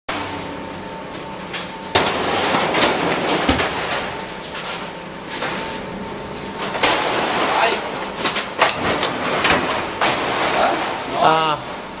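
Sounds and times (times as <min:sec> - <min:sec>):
metal shelving clanging: 0:06.5 - 0:11.4.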